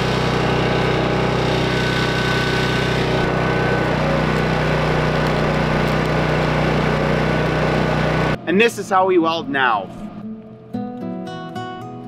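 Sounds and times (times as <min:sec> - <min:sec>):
arc welding crackle: 0:00.0 - 0:08.4
generator engine running: 0:00.0 - 0:10.2.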